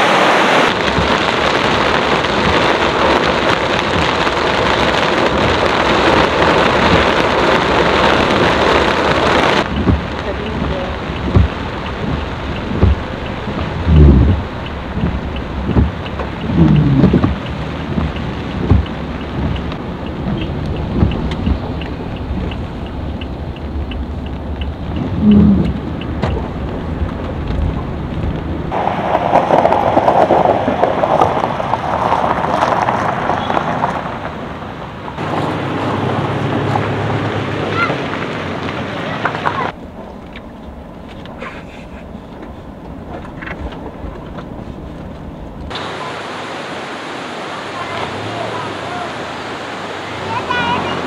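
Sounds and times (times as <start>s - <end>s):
engine and road rumble: 0.0s - 51.0s
rain on a car: 0.0s - 51.0s
light regular ticking: 9.6s - 28.5s.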